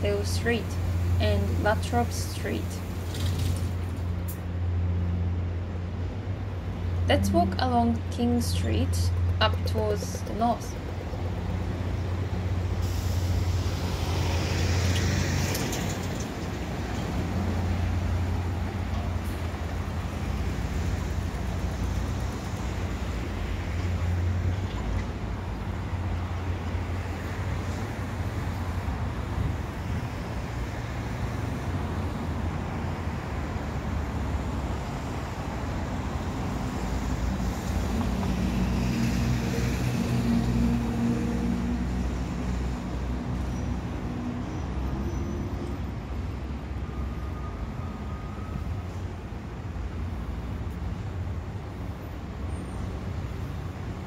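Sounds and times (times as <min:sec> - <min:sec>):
truck engine: 0:00.0 - 0:29.5
traffic rumble: 0:00.0 - 0:54.0.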